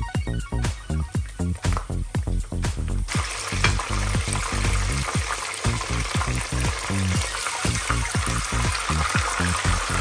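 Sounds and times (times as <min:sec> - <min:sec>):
cutlet sizzling in hot oil: 0:02.2 - 0:10.0.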